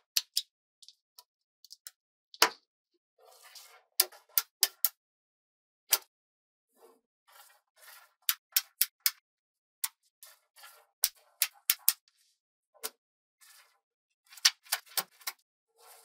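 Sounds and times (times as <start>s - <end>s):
magnetic balls clicking together: 11.0s - 12.0s.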